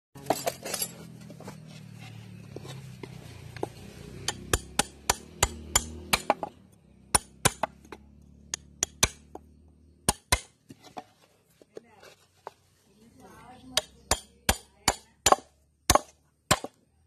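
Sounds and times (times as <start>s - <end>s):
hammer tapping metal: 4.2s - 6.5s, 8.5s - 9.4s, 13.7s - 16.7s.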